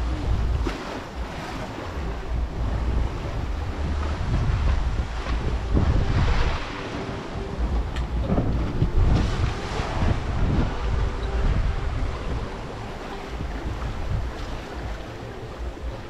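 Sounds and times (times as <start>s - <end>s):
water rushing past boat hull: 0.0s - 16.0s
wind buffeting microphone: 0.0s - 16.0s.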